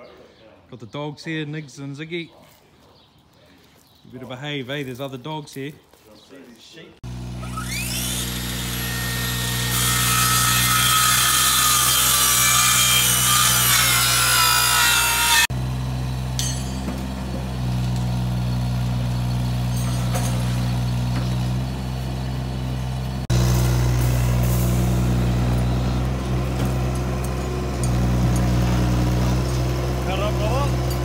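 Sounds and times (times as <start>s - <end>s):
angle grinder cutting steel: 7.0s - 15.5s, 23.2s - 31.0s
excavator diesel engine running: 15.5s - 31.0s.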